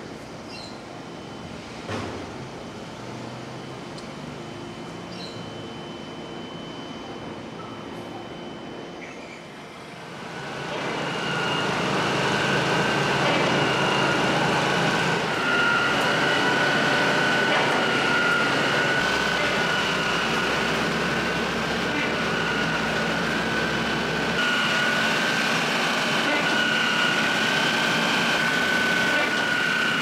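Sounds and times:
pump running with high whine: 0.0 - 30.0.

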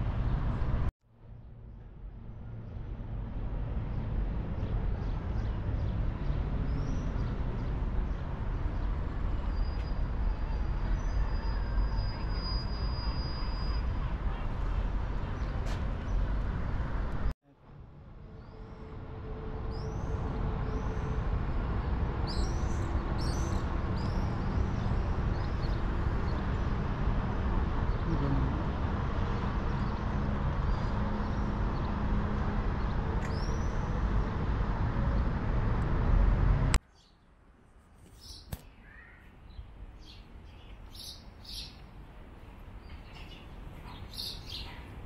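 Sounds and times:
city traffic rumble: 0.0 - 45.0
small birds chirping: 38.1 - 41.9, 42.5 - 45.0.

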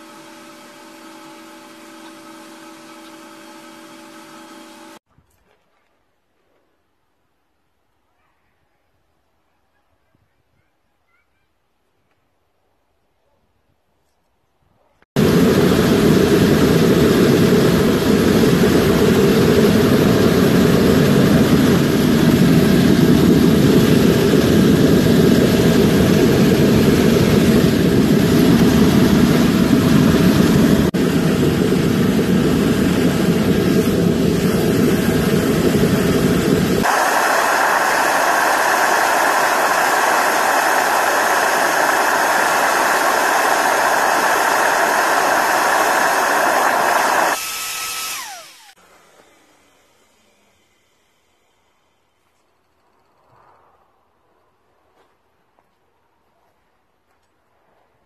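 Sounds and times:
blower motor whine: 0.0 - 5.0, 15.2 - 52.4
forge roaring: 15.2 - 47.4.

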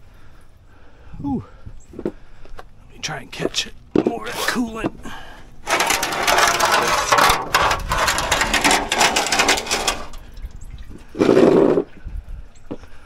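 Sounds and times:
coolant splashing into pan: 8.4 - 11.3.

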